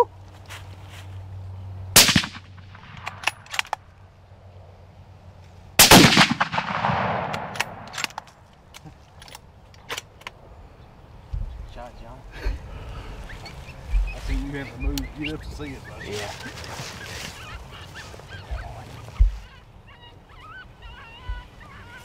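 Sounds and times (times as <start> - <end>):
rifle shots echoing: 2.0 - 3.8, 5.8 - 8.3.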